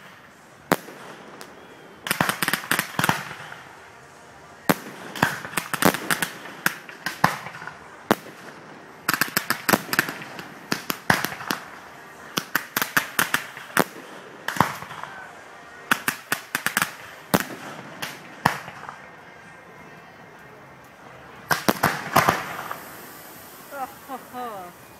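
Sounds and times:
fireworks bangs and crackling: 0:00.0 - 0:24.9.

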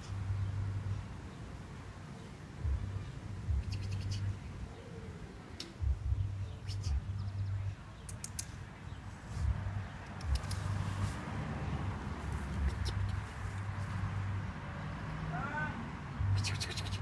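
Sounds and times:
low rumbling on microphone: 0:02.6 - 0:04.8, 0:05.8 - 0:07.8, 0:09.4 - 0:14.6.

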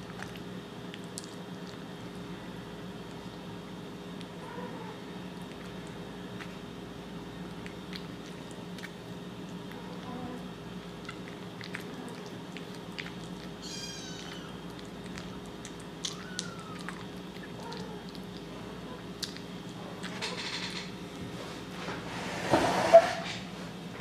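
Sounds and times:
kitten eating wet food: 0:00.0 - 0:21.4
steady low hum: 0:00.0 - 0:24.0
kitten mewing: 0:13.6 - 0:15.4, 0:16.0 - 0:18.1.

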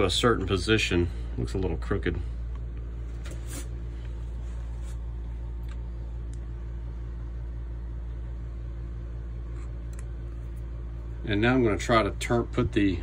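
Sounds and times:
air conditioner humming: 0:00.0 - 0:13.0.

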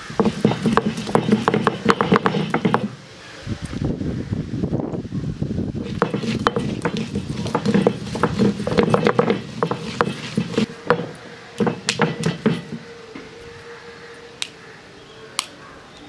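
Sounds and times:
stone roller grinding spices: 0:00.0 - 0:03.0, 0:05.8 - 0:12.9
sharp clicks of scraping on stone: 0:05.8 - 0:12.8.

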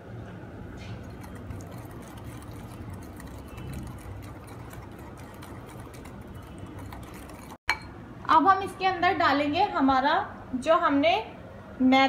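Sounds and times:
whisk scraping glass bowl: 0:01.0 - 0:07.8.

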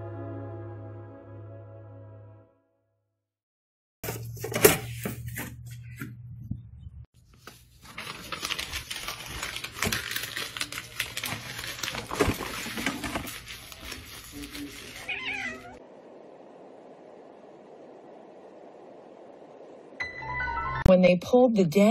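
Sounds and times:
paper crumpling: 0:07.2 - 0:15.8
low hum: 0:15.8 - 0:20.9.

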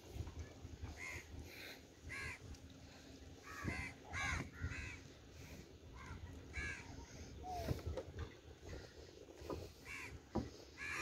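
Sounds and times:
crows cawing: 0:01.0 - 0:01.3, 0:02.1 - 0:02.4, 0:03.4 - 0:05.0, 0:06.0 - 0:06.8, 0:09.8 - 0:11.0.

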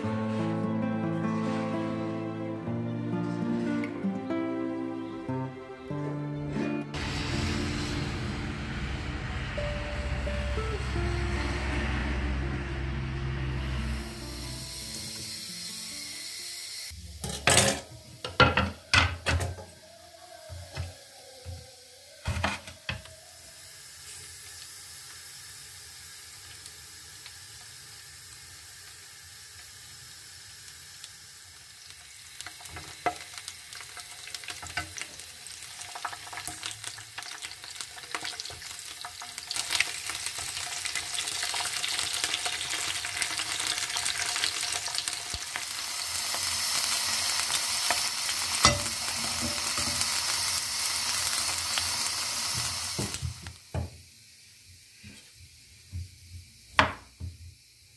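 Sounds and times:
peppers sizzling in hot oil: 0:13.6 - 0:57.9.

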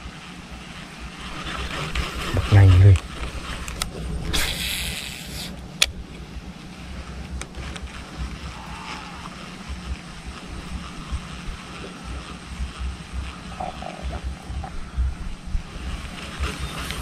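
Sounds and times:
fishing line hissing off reel: 0:04.2 - 0:05.6
wind rumble on microphone: 0:05.6 - 0:17.0.

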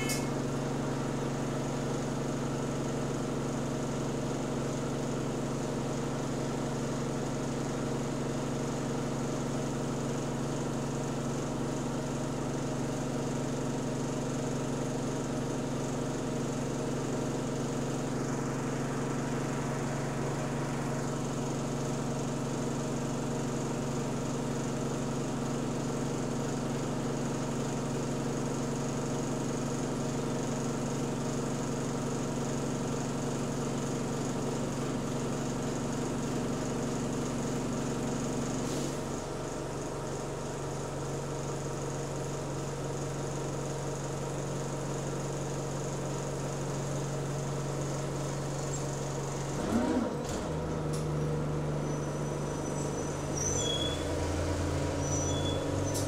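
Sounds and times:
bus diesel engine droning: 0:00.0 - 0:01.6, 0:14.2 - 0:24.5, 0:37.6 - 0:40.6, 0:47.0 - 0:56.0.

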